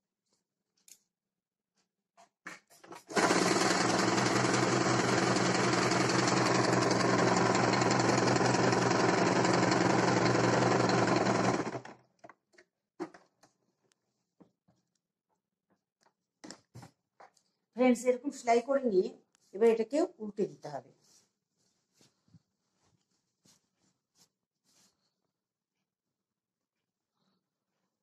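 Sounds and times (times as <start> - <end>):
sewing machine stitching: 2.9 - 12.0.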